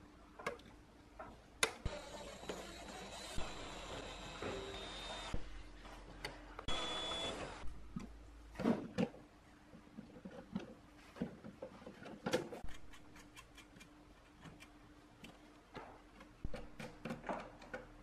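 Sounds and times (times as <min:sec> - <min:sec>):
cordless drill whine: 0:01.9 - 0:05.4, 0:06.7 - 0:07.6.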